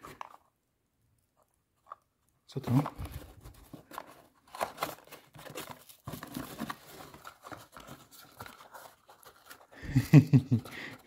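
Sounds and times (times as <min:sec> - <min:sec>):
plastic bags and cardboard rustling: 0:02.5 - 0:11.0.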